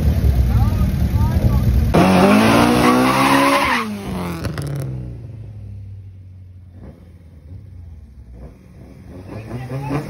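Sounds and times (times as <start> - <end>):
car engine revving: 0.0 - 10.0
tyres screeching: 2.0 - 4.0.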